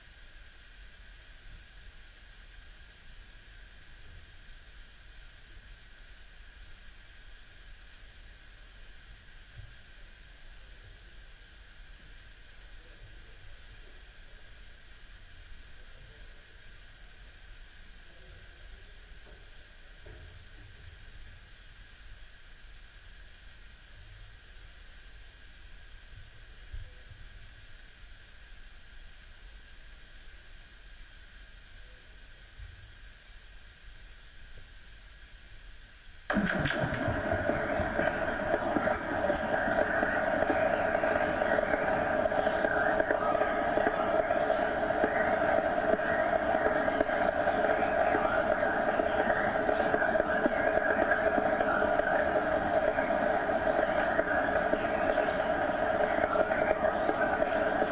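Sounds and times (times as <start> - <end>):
low rumble: 36.3 - 57.9.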